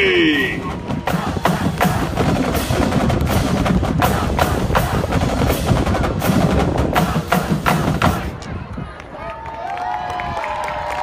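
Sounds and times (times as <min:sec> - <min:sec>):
bass drums: 0:00.0 - 0:08.4.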